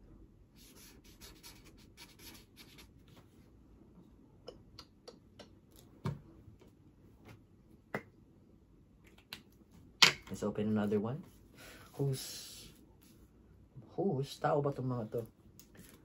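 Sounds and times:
pen scratching on paper: 0.6s - 2.9s.

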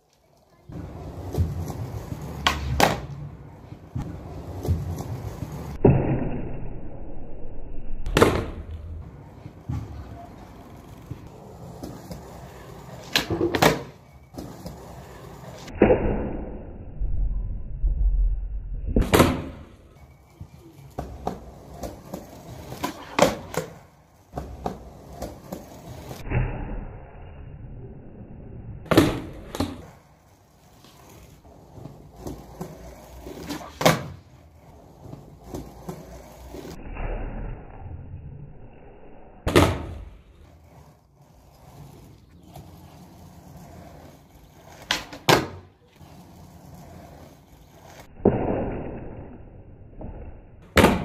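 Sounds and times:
skateboard clicks and taps: 0.0s - 3.3s, 8.1s - 15.7s, 20.3s - 26.1s, 40.7s - 48.1s
skateboard wheels rolling: 0.0s - 5.8s, 8.0s - 16.5s, 18.3s - 51.0s
skateboard landing clack: 0.7s - 3.3s, 8.0s - 10.2s, 11.0s - 14.8s, 18.8s - 19.8s, 21.0s - 26.8s, 28.8s - 30.0s, 31.8s - 34.3s, 39.4s - 40.2s, 44.7s - 45.7s, 50.0s - 51.0s
skateboard pop: 0.7s - 3.3s, 8.0s - 9.0s, 11.0s - 16.5s, 18.8s - 19.7s, 21.0s - 26.7s, 28.9s - 30.0s, 31.8s - 34.3s, 39.4s - 40.2s, 44.7s - 45.7s, 50.0s - 51.0s.

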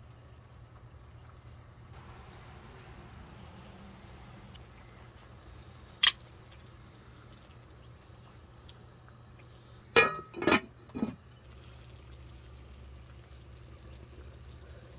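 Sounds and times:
sauce simmering in a skillet: 0.0s - 9.9s, 11.2s - 14.9s
steady low hum: 0.0s - 14.9s
glass lid clinking on skillet: 10.0s - 11.2s.

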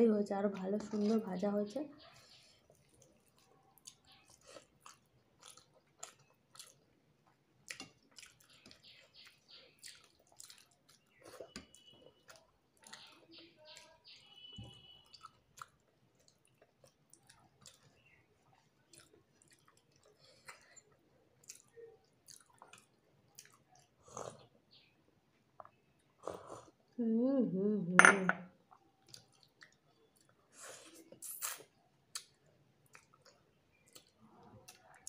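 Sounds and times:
wet chewing and mouth clicks: 2.0s - 24.9s, 28.6s - 35.0s
sipping soup: 30.5s - 32.3s.

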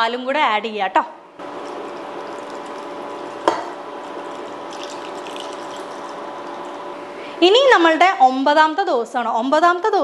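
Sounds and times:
milk pouring from a jug: 1.4s - 6.9s
milk simmering in a pan: 1.4s - 6.9s.

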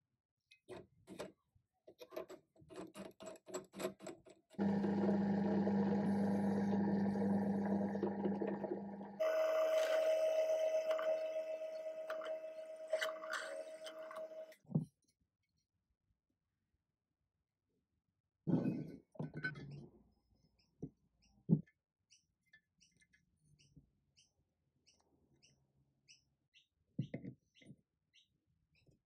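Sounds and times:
drill press motor humming: 4.6s - 14.5s.

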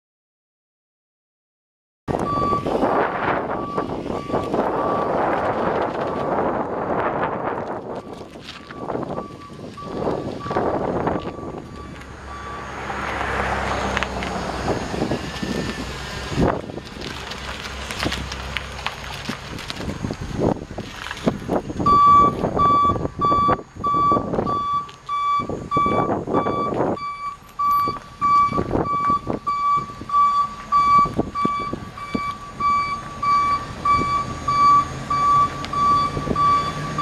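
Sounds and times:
truck backup alarm beeping: 2.1s - 16.6s, 21.8s - 37.0s
rushing noise: 2.1s - 24.6s
truck engine running: 2.1s - 37.0s.

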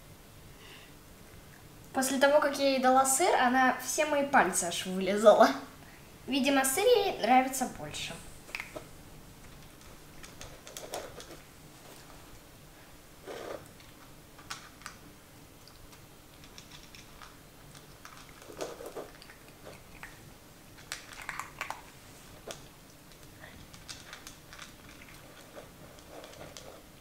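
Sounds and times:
puppy chewing food: 13.3s - 27.0s.

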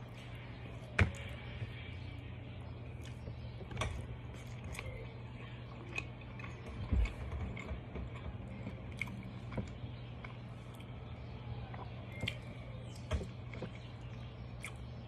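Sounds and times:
steady low hum: 0.0s - 15.0s
chewing and mouth sounds: 2.8s - 15.0s.

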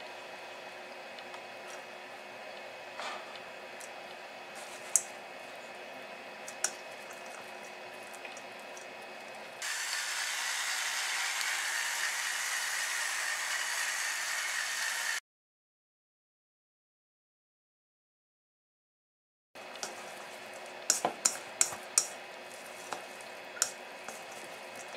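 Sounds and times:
chopsticks clicking on steel bowl: 20.9s - 22.1s.

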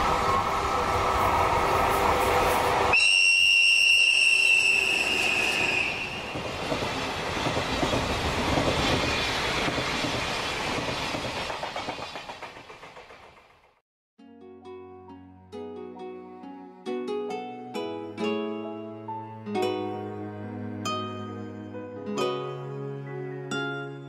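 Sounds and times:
train running on rails: 0.0s - 13.8s
wheel clatter over rail joints: 6.4s - 13.8s.

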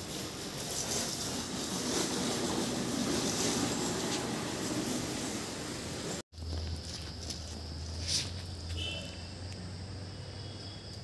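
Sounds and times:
train passing: 0.0s - 6.2s.

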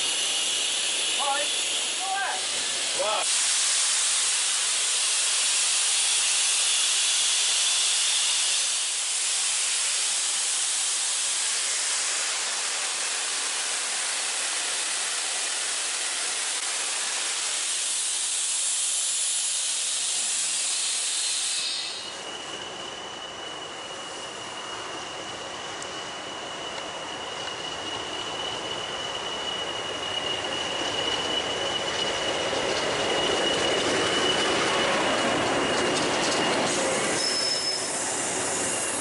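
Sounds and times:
low rumble of approaching train: 0.0s - 39.0s
steam hissing from locomotive: 0.0s - 39.0s
thin steady squeal: 19.8s - 39.0s.

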